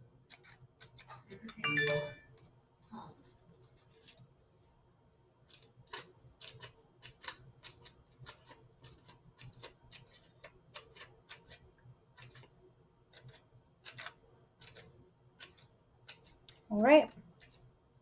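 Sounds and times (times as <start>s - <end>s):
scissors snipping paper: 0.3s - 1.6s, 5.5s - 12.5s, 13.1s - 17.6s.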